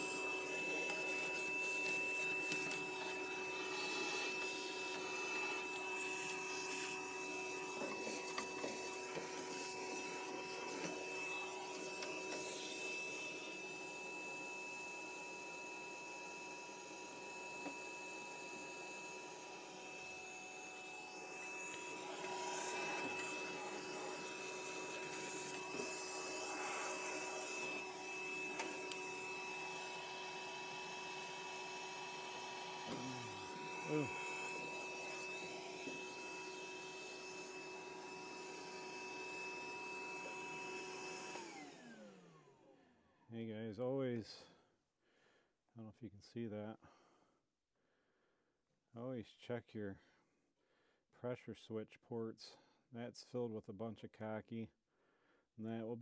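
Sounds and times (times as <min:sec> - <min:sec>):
shop vacuum whining hum: 0:00.0 - 0:43.2.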